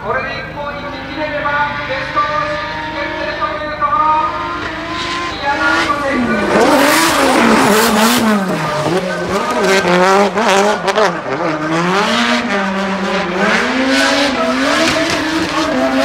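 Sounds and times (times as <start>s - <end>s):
car engine at high revs: 0.0s - 16.0s.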